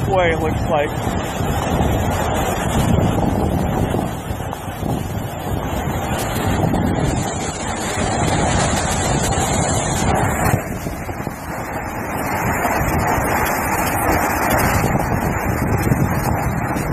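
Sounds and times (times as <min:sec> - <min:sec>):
waterfall rushing: 0:00.0 - 0:16.9
wind buffeting microphone: 0:00.0 - 0:16.9.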